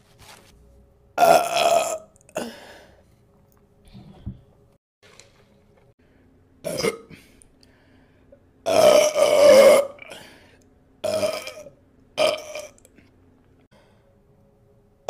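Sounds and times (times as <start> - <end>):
woman burping: 1.2 - 2.6, 6.6 - 7.2, 8.7 - 10.2, 11.0 - 12.8.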